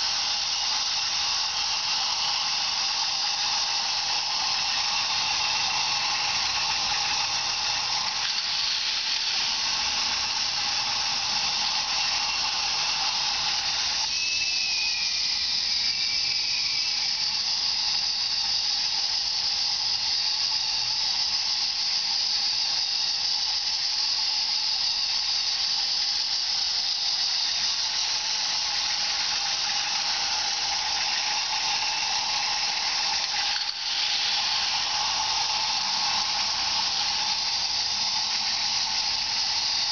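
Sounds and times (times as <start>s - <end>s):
small electric motor whirring: 0.0s - 39.9s
plastic cars rolling on track: 1.1s - 15.0s, 28.7s - 39.9s.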